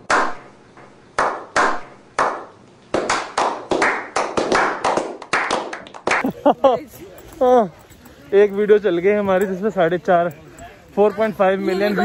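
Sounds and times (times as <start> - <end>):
slow hand clapping: 1.2 - 6.4.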